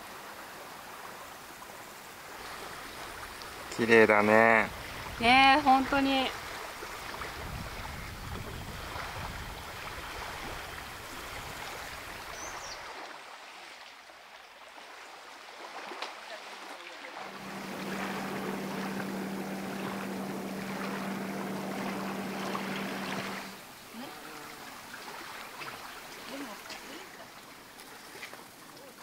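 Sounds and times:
water lapping: 0.3s - 29.0s
wind noise: 4.6s - 5.6s, 6.3s - 12.3s
steady low hum: 17.2s - 23.8s.

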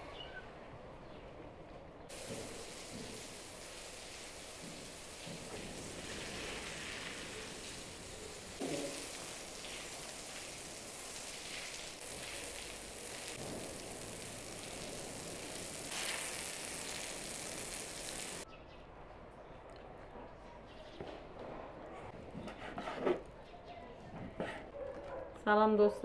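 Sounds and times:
hose water splashing on concrete: 2.1s - 18.4s.

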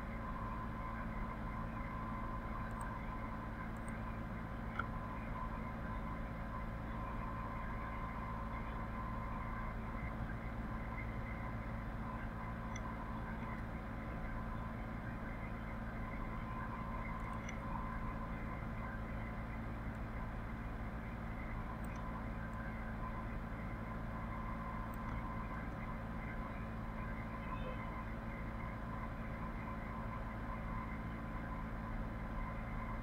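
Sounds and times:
faint steady tones: 0.0s - 33.0s
low hum and hiss: 0.0s - 33.0s
faint ticks: 2.5s - 5.0s, 12.5s - 13.7s, 16.9s - 18.2s, 21.4s - 22.8s, 24.5s - 25.9s.

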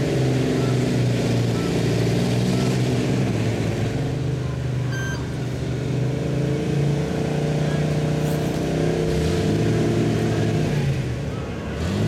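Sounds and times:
truck engine idling: 0.0s - 6.1s
short high beep: 4.9s - 5.3s.

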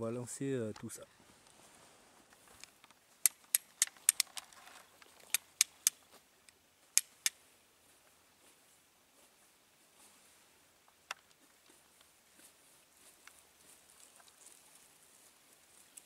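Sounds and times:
flint and steel scraping strikes: 2.6s - 6.0s, 6.9s - 7.4s.

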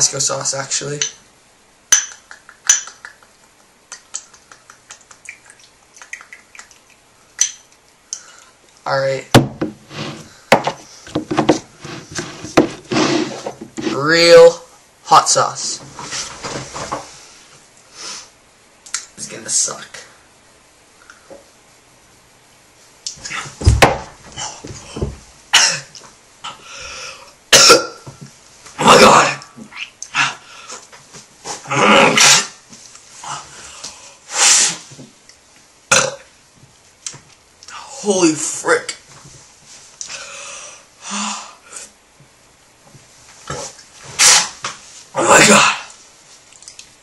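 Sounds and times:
heavy thump: 9.3s - 13.9s, 23.6s - 25.2s
boy coughing and gasping: 27.6s - 28.1s.

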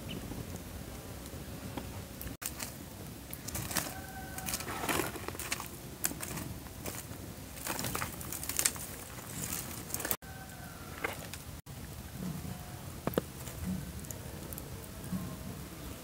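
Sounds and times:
sticks scraping through charcoal: 2.2s - 11.5s.

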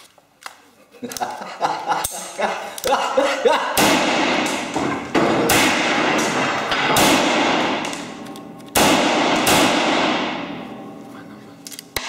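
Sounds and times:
pistol shots with echo: 3.8s - 11.0s.

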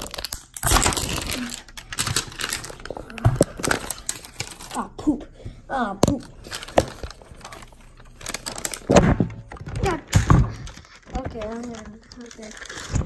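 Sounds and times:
plastic capsule cracking and clicking: 0.0s - 4.7s.

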